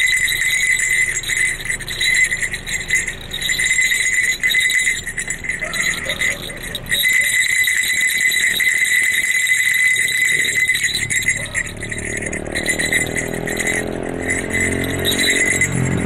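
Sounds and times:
low engine hum: 0.0 - 16.0
small metal chimes tinkling: 0.0 - 16.0.

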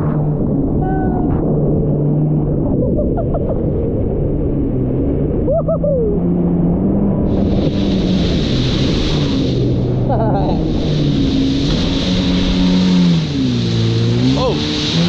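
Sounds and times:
jet ski engine running: 0.0 - 15.0
wind and water rumble on microphone: 0.0 - 15.0
spray hissing: 7.3 - 15.0.

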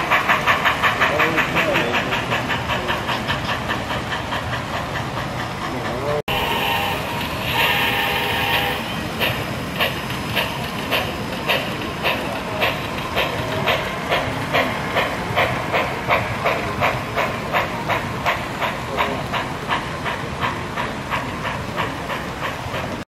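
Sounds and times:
steam locomotive exhaust chuffs: 0.0 - 23.0
steam hiss with held tone: 6.3 - 20.0.

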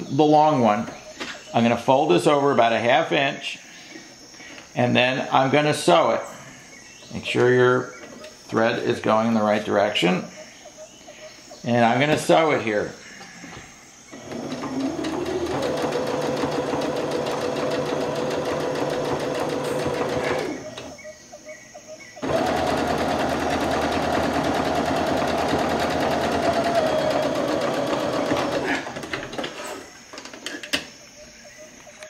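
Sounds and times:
sewing machine stitching: 14.2 - 20.9, 22.2 - 29.5.

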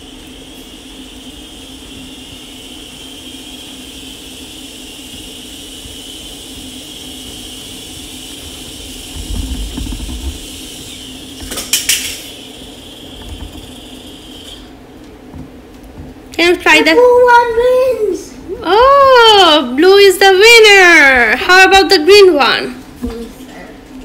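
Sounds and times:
faint high whine: 0.0 - 15.2
background hum: 0.0 - 24.0
toy cars clattering on floor: 11.4 - 12.3.

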